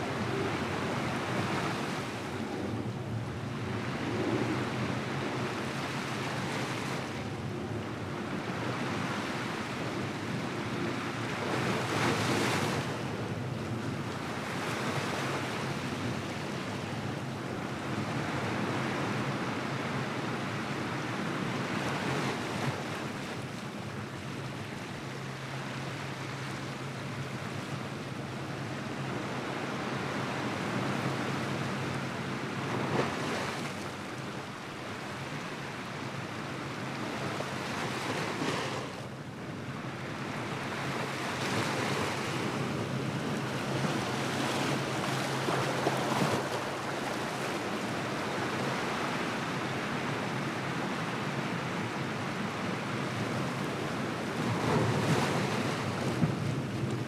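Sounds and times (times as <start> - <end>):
waves breaking on rocky shore: 40.6 - 57.0.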